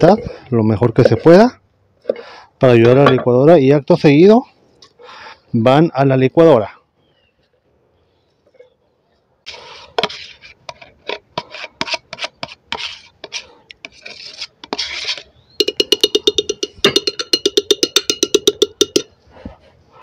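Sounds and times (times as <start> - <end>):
spoon scraping cream: 9.5 - 16.3
spoon tapping glass jar rim: 15.6 - 19.2.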